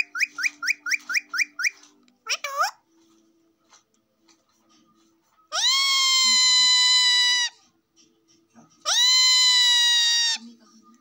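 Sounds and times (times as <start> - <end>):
parakeet calls: 0.0 - 2.8, 5.5 - 7.6, 8.8 - 10.4.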